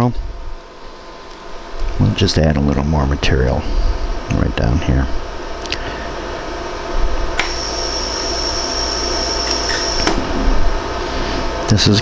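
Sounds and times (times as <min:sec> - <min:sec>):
low machine hum: 0:00.0 - 0:12.0
steady high whine: 0:00.0 - 0:12.0
laser welder clicks: 0:07.4 - 0:07.7, 0:09.4 - 0:10.2.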